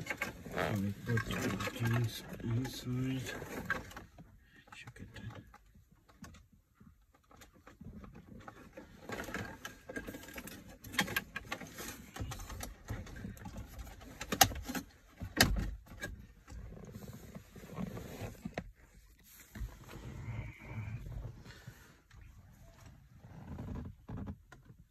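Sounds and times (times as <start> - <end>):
plastic rustling and rubbing: 0.0 - 4.1, 16.1 - 24.4.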